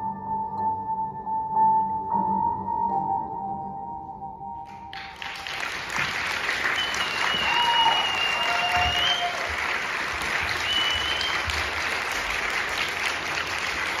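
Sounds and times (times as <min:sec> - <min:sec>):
audience applauding: 0:04.9 - 0:14.0
high-pitched cheers: 0:06.5 - 0:11.7.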